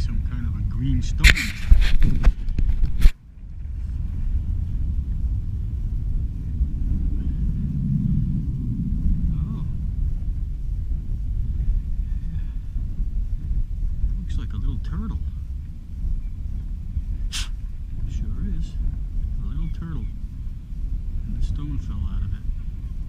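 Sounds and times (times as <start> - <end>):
wind buffeting microphone: 0.0 - 23.0
camera handling noise: 1.2 - 3.2.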